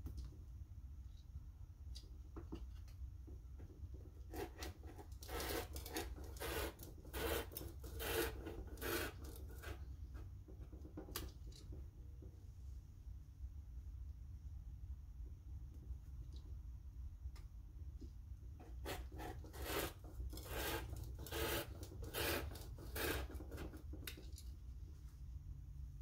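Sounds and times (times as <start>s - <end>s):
rotary cutter cutting fabric: 4.3s - 9.8s, 18.7s - 23.7s.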